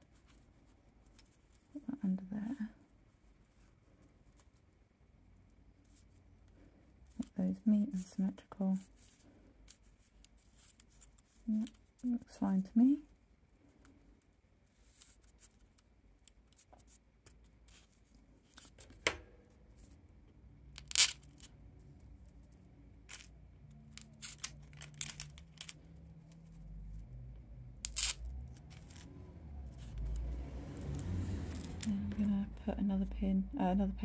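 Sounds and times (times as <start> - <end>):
small clicks and rustles: 0.0 - 1.8, 8.8 - 12.1, 13.1 - 19.1, 20.8 - 26.8, 27.8 - 31.9.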